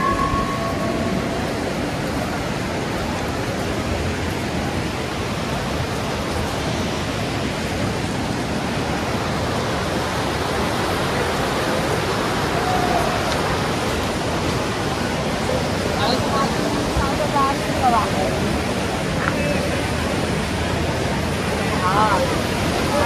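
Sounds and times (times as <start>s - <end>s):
bell ringing: 0.0s - 2.0s
white water rushing over rocks: 0.0s - 23.0s.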